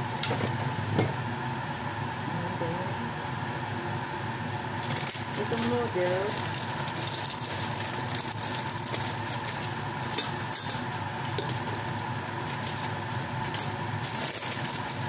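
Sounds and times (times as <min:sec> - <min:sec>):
kitchen hum: 0:00.0 - 0:15.0
plastic packet crinkling: 0:04.8 - 0:09.8, 0:11.4 - 0:15.0.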